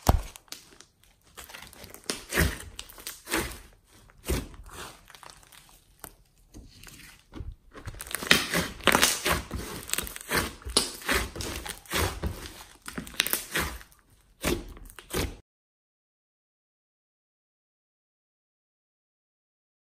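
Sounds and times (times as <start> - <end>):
slime squishing: 0.0 - 15.4.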